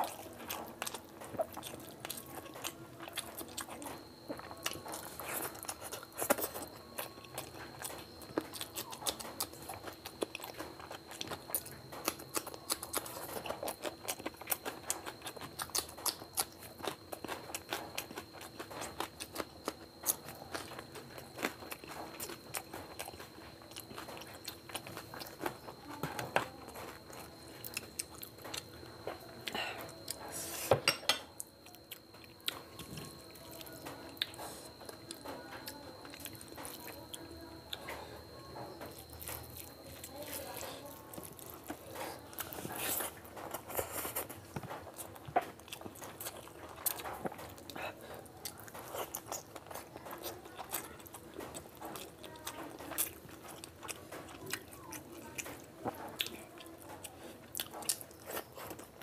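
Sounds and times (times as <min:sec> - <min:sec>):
chewing and mouth smacks: 0:00.0 - 0:30.2, 0:31.4 - 0:59.0
faint steady high tone: 0:00.0 - 0:45.5.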